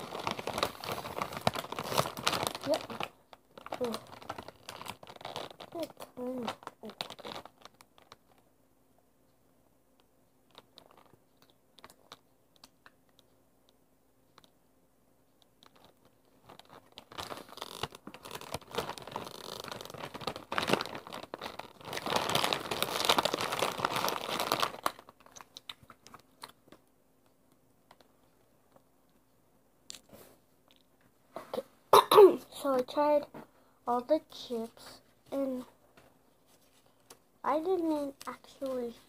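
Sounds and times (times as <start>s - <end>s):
chip bag crinkling: 0.0s - 8.4s, 10.5s - 12.2s, 15.6s - 26.6s.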